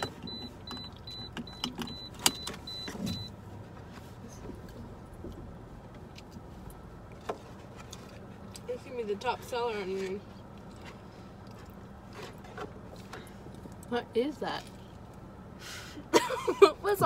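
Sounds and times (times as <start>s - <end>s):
car warning chime beeping: 0.0s - 3.4s
road rumble in car cabin: 0.0s - 17.0s.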